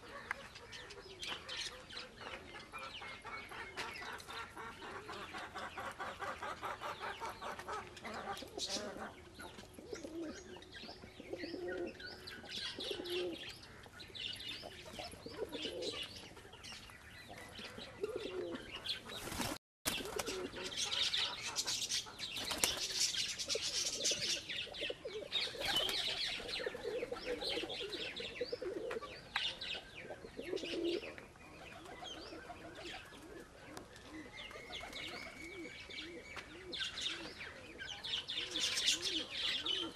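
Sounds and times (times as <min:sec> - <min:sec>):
pigeons cooing: 0:00.0 - 0:39.9
wing flaps: 0:19.2 - 0:20.4.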